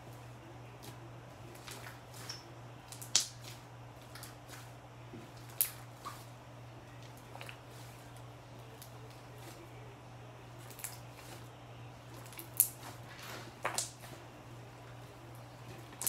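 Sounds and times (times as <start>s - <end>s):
slime crackling and popping: 0.8s - 4.7s, 5.4s - 6.3s, 10.6s - 11.4s, 12.1s - 14.2s.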